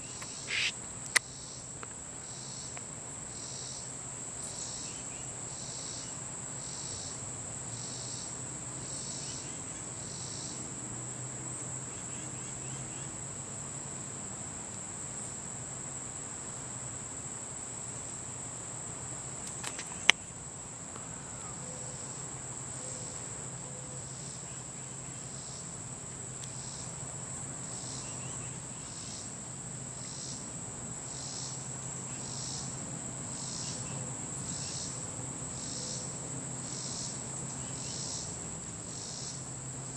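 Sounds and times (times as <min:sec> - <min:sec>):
insect high-pitched drone: 0:00.0 - 0:39.9
insects chirping rhythmically: 0:00.0 - 0:39.9
sharp click: 0:00.2 - 0:01.3, 0:19.4 - 0:20.2.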